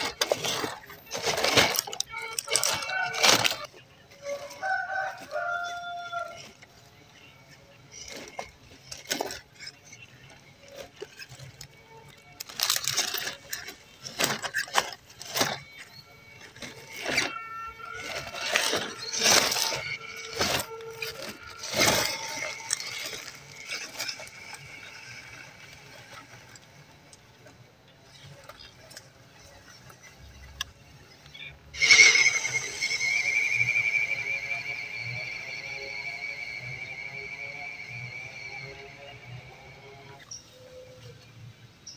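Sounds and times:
tyres crunching over stones: 0.0s - 40.4s
small electric motor whine: 0.0s - 41.9s
loud high-pitched tone: 31.8s - 40.2s.

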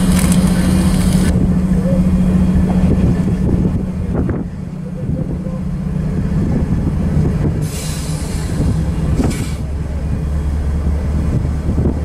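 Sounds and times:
diesel locomotive engine drone: 0.0s - 12.0s
hiss: 7.6s - 9.6s.

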